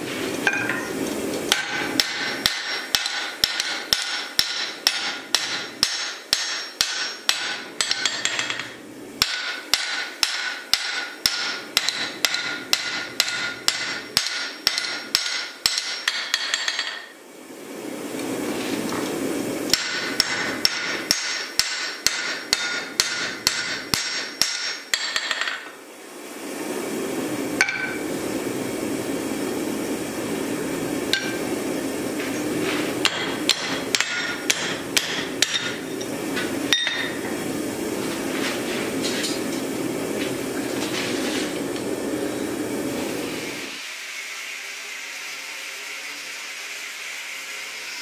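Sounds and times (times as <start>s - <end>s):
hammer ringing on hot steel: 1.5s - 17.1s, 19.7s - 25.6s, 27.6s - 28.0s, 33.0s - 36.1s, 36.7s - 37.2s.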